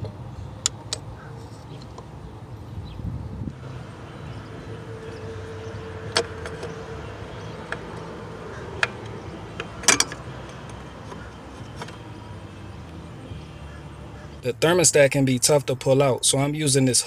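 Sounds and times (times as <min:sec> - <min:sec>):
clicks and knocks of car parts: 0:04.8 - 0:13.0.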